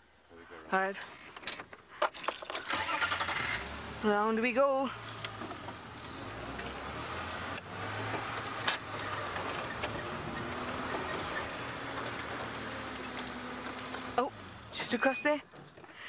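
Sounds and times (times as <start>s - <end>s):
vehicle engine running: 3.0s - 15.0s
vehicle knocks and rattles: 7.9s - 16.0s.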